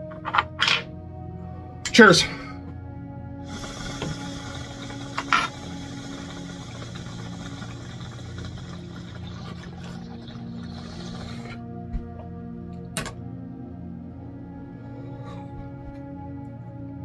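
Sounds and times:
water bubbling in water pipe: 0:03.4 - 0:11.6.

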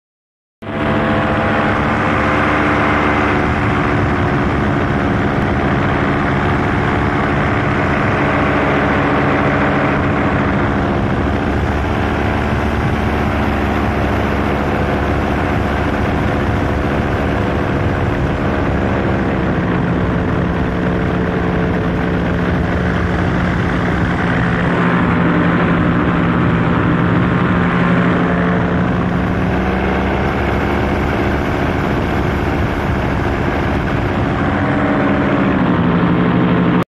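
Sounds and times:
paramotor engine and propeller: 0:00.6 - 0:36.8.

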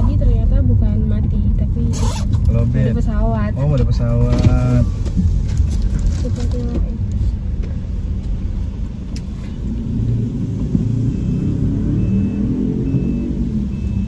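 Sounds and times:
car engine rumble and road noise: 0:00.0 - 0:14.0
faint high beep: 0:10.9 - 0:14.0.

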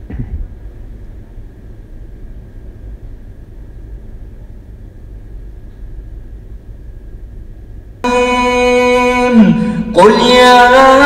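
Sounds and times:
low rumbling background noise: 0:00.0 - 0:11.0
faint steady high tone: 0:08.0 - 0:11.0.

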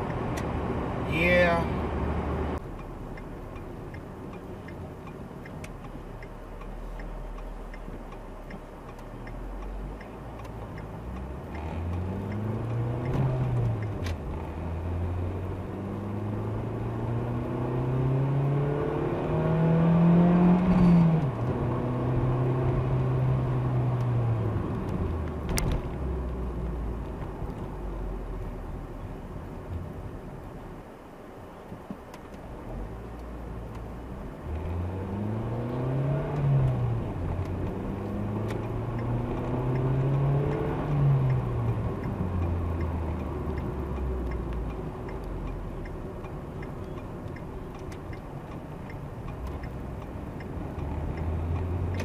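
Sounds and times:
road noise inside car: 0:00.0 - 0:52.0
car engine revving: 0:09.4 - 0:28.4, 0:34.1 - 0:46.3, 0:47.2 - 0:52.0.

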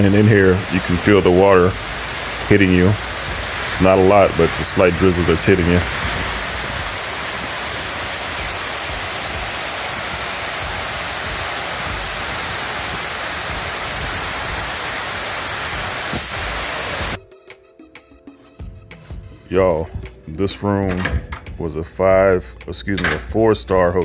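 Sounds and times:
water rushing down fountain walls: 0:00.0 - 0:17.2.

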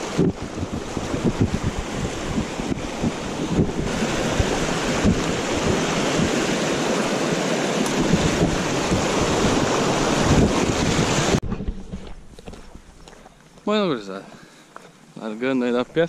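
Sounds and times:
wind buffeting microphone: 0:00.0 - 0:07.2, 0:07.8 - 0:13.1
stream rushing over stones: 0:00.0 - 0:11.4.

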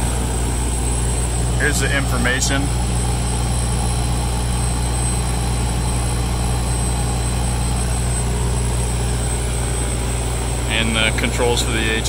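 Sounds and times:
diesel generator droning: 0:00.0 - 0:12.0
hvac unit humming: 0:00.0 - 0:12.0.

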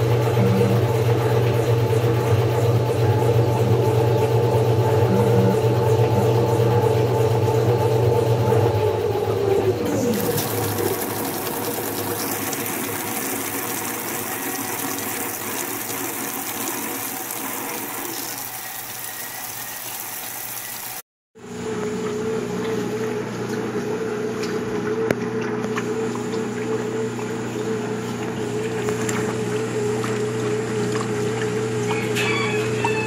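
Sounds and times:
washing machine motor tone: 0:00.0 - 0:33.0
agitator churning clothes in water: 0:09.7 - 0:21.0, 0:21.7 - 0:32.8
water filling tub: 0:09.9 - 0:21.0.

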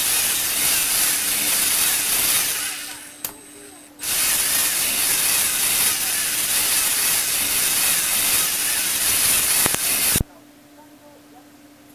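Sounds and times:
motors whirring through gears: 0:00.0 - 0:10.2.

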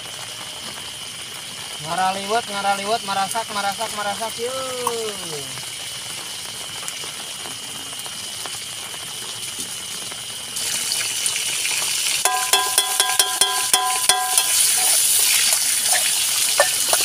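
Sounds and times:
food sizzling in a pan: 0:00.0 - 0:17.0
metal spatula clinking on pan: 0:12.2 - 0:17.0.

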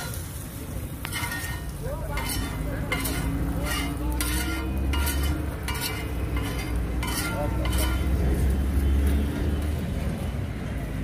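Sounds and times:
light sizzling: 0:00.0 - 0:08.8
metal spatula scraping iron griddle: 0:00.0 - 0:08.8.

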